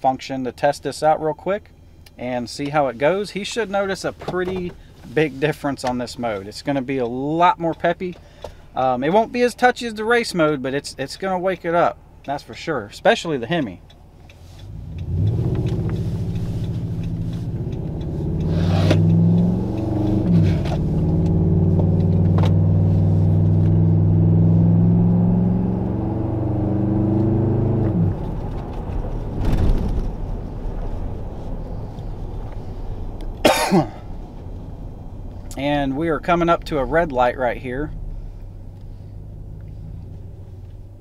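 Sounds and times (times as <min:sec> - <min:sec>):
truck engine accelerating and shifting: 0:13.6 - 0:33.4, 0:34.0 - 0:41.0.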